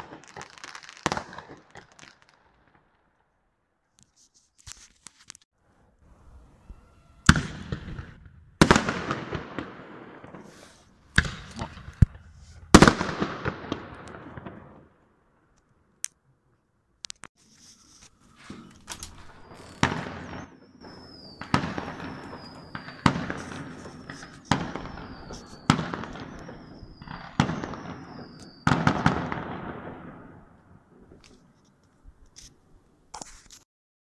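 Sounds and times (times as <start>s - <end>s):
fireworks bangs with crackle: 0.0s - 3.1s, 7.3s - 14.9s, 18.5s - 31.5s
high whistle falling in pitch: 19.2s - 28.7s.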